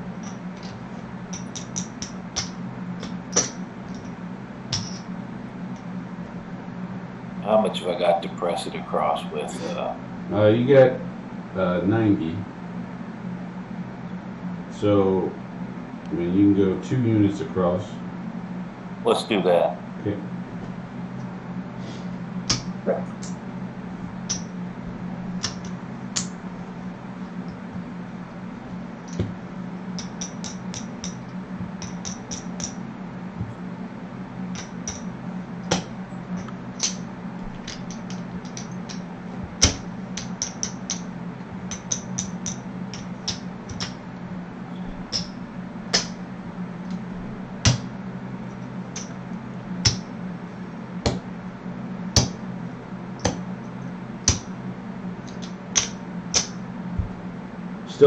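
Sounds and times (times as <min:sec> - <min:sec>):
steady low hum: 0:00.0 - 0:58.0
casino chips clicking: 0:01.3 - 0:04.1, 0:04.7 - 0:05.0, 0:30.0 - 0:31.2, 0:31.8 - 0:32.8, 0:36.8 - 0:37.0, 0:37.6 - 0:39.0, 0:39.6 - 0:41.0, 0:41.6 - 0:44.0.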